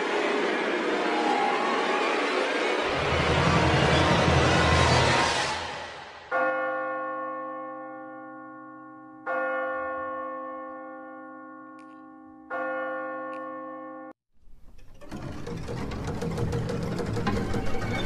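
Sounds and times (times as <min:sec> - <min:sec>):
church bell tolling: 0:06.3 - 0:14.2.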